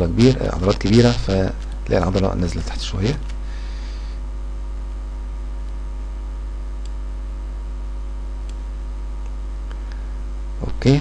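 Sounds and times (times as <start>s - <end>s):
electrical mains hum: 0.0s - 11.0s
faint clicks: 6.8s - 7.0s, 8.4s - 8.6s.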